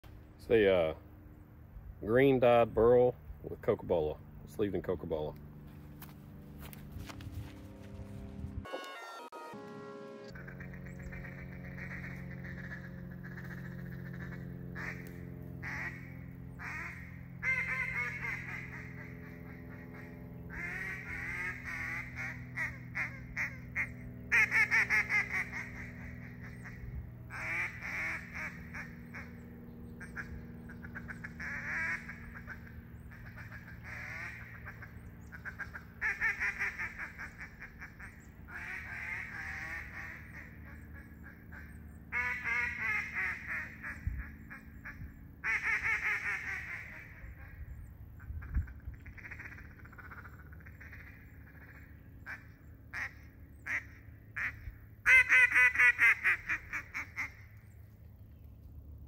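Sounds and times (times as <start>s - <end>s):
duck call quacks: 8.6s - 29.4s, 30.0s - 47.6s, 48.4s - 57.5s.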